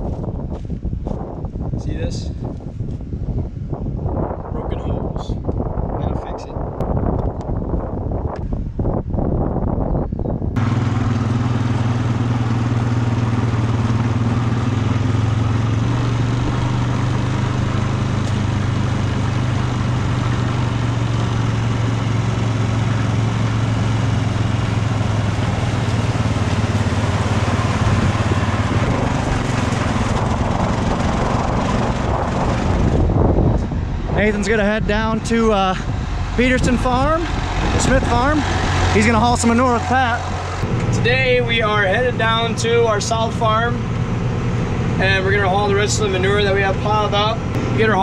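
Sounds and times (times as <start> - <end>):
quad bike engine running: 10.6 - 48.0.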